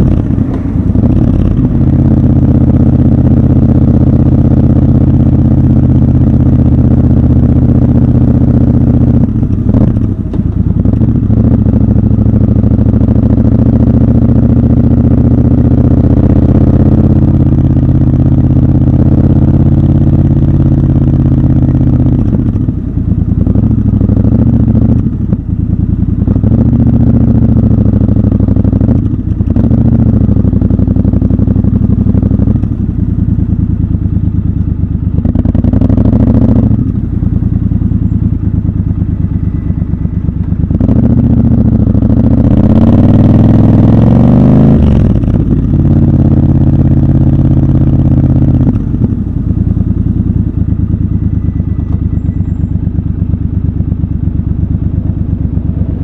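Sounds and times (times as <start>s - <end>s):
motorcycle engine and exhaust: 0.0s - 56.0s.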